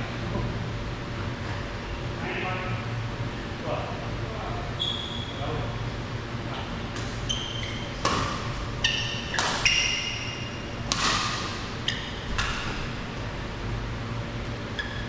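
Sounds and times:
shoes squeaking on court: 0:04.8 - 0:05.4, 0:07.0 - 0:13.0, 0:14.7 - 0:15.0
racket striking shuttlecock: 0:08.0 - 0:10.3, 0:10.9 - 0:12.9.

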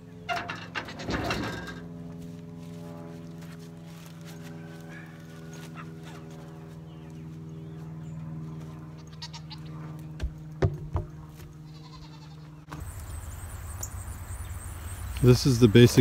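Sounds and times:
low hum: 0:00.0 - 0:16.0
goats bleating: 0:08.9 - 0:09.9, 0:11.6 - 0:12.6
wooden post knocking on ground: 0:10.2 - 0:11.2.

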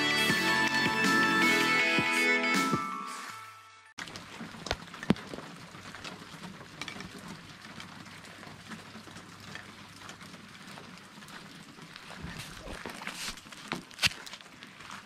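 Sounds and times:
rain falling: 0:04.0 - 0:15.0.

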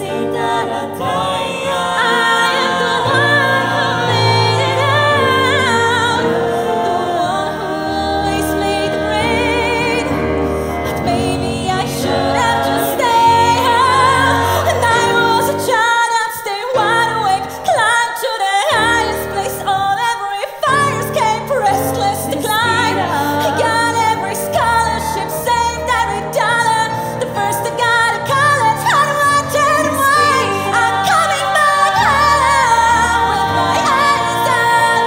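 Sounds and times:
grand piano: 0:00.0 - 0:35.0
woman singing a ballad: 0:10.9 - 0:35.0.

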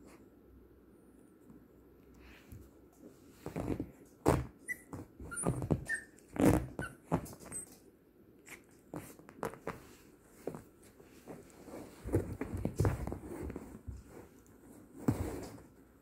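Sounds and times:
dog high squeaks: 0:04.6 - 0:07.8
dogs scuffling and mouthing: 0:08.5 - 0:15.8.

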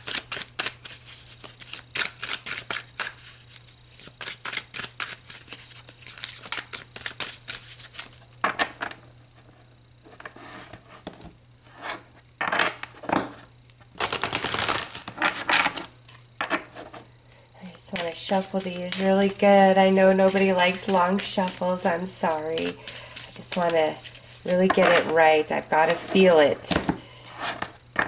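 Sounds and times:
cards being shuffled: 0:00.0 - 0:08.2, 0:14.0 - 0:17.0, 0:17.8 - 0:26.3.

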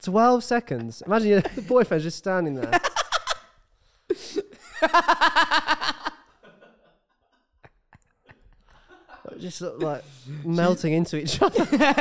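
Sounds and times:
man laughing: 0:00.7 - 0:03.4, 0:11.3 - 0:12.0.

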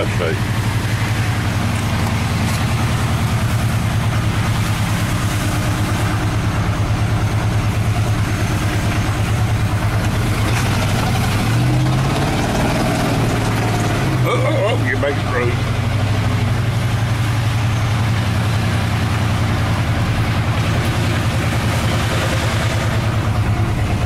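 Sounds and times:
truck engine throbbing: 0:00.0 - 0:24.0.

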